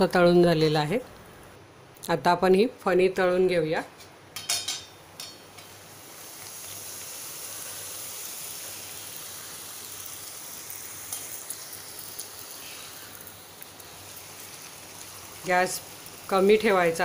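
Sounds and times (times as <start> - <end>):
dough sizzling in hot oil: 4.5 - 17.0.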